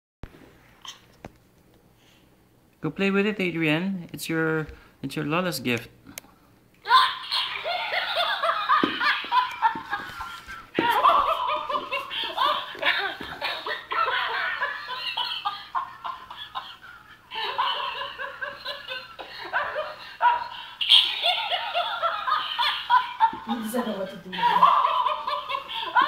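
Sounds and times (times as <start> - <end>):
toy playing recorded laughter: 6.9 - 23.4, 24.4 - 26.0.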